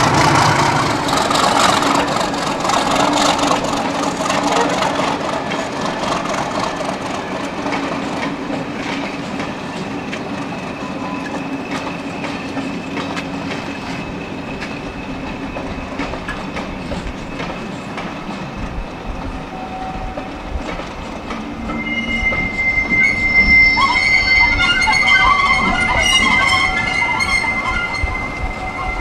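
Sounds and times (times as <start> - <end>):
train wheels clicking over rail joints: 0.0 - 23.0
train rumble: 0.0 - 29.0
high wheel squeal: 9.6 - 18.0, 21.5 - 29.0.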